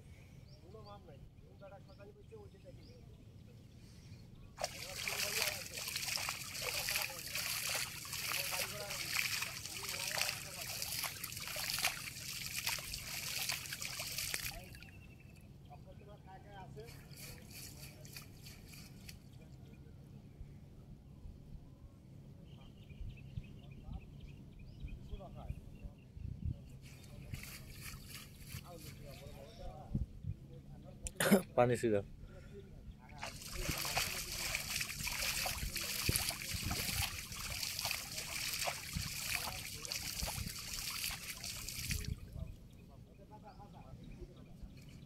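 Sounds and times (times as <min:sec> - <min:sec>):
water splashing and trickling: 0:04.6 - 0:15.0, 0:17.0 - 0:19.2, 0:26.9 - 0:29.2, 0:33.1 - 0:42.5.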